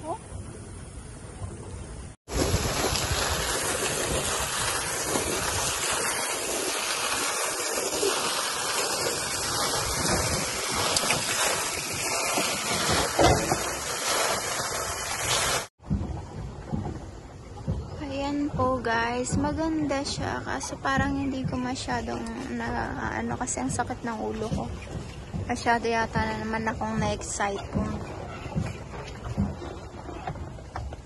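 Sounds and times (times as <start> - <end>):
fountain water splashing: 2.3 - 15.7.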